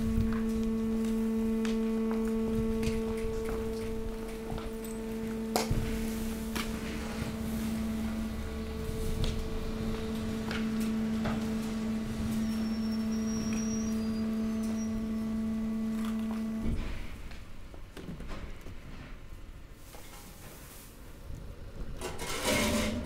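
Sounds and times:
hydraulic press humming: 0.0s - 17.7s.

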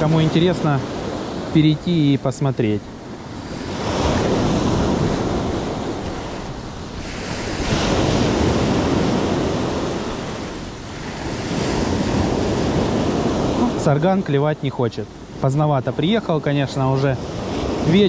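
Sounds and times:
waves breaking on shore: 0.0s - 18.0s.

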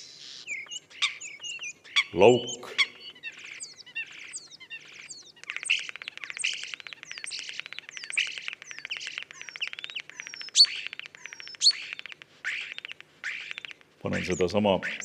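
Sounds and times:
starling song: 14.0s - 15.0s.

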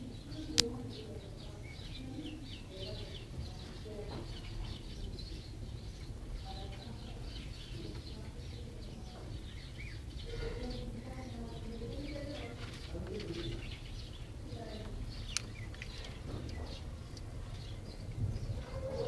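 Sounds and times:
birds chirping: 0.0s - 19.0s
low cooing: 18.4s - 19.0s.

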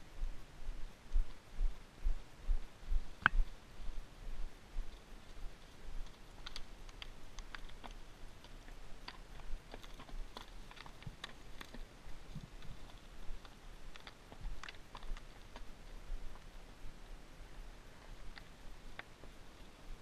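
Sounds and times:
hooves on rocky ground: 0.2s - 20.0s
horse tack clicking: 4.8s - 16.7s, 18.0s - 20.0s.

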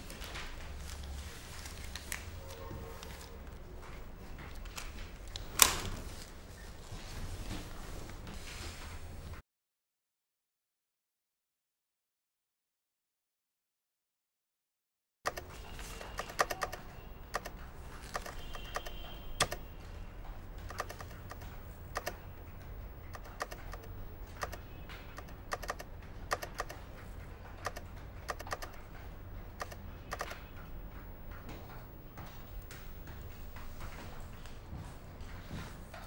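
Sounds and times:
calculator keys clicking: 15.3s - 19.7s, 20.5s - 34.0s.

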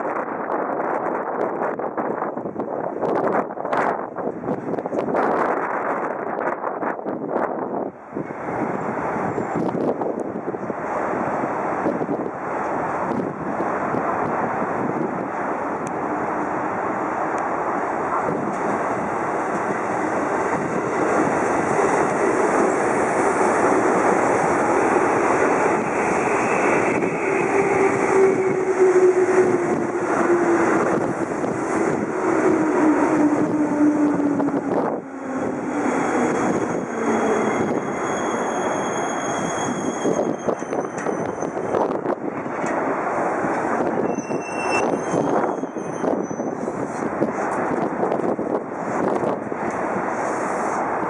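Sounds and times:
electric train rumbling: 0.0s - 51.0s
thin high squeal: 36.5s - 41.5s, 44.0s - 46.7s.

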